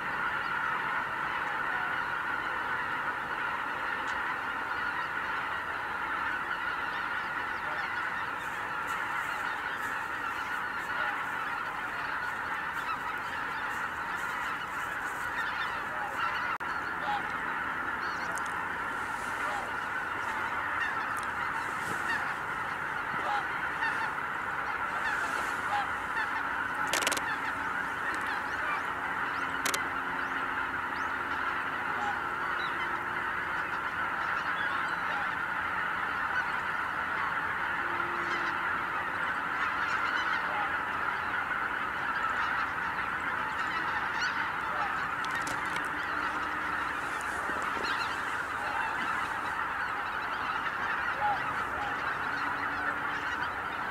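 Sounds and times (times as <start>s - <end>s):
flock of geese honking: 0.0s - 53.9s
sharp clicks: 26.8s - 27.3s.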